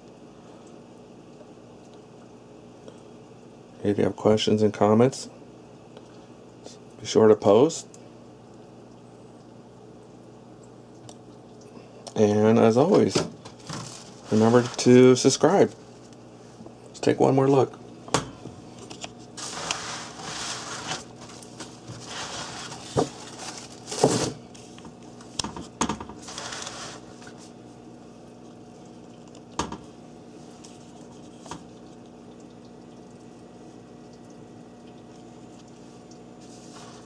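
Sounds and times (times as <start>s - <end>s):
low steady hum: 0.0s - 37.0s
handling rustles and knocks: 12.9s - 15.0s, 18.2s - 27.6s.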